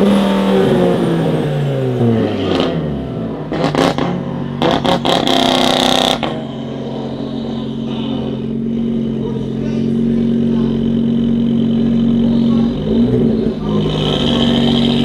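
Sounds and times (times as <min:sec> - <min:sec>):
car engine lumpy idle: 0:00.0 - 0:15.0
car engine revs falling: 0:00.0 - 0:15.0.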